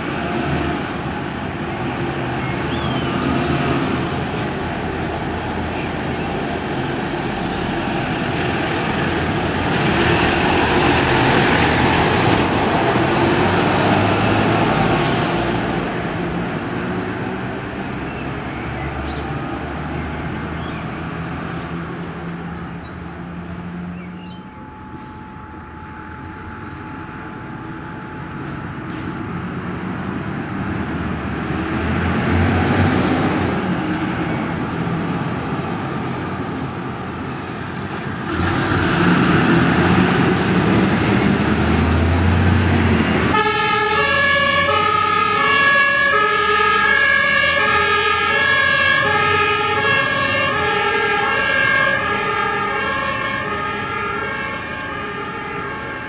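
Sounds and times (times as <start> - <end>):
diesel engine revving: 0.0 - 24.3, 27.2 - 56.0
two-tone siren: 24.4 - 28.5, 43.3 - 56.0.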